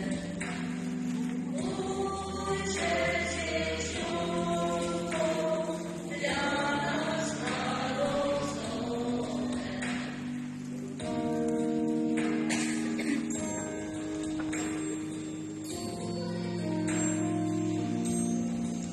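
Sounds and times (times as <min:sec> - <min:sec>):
vocal ensemble singing in harmony: 0:00.0 - 0:11.1.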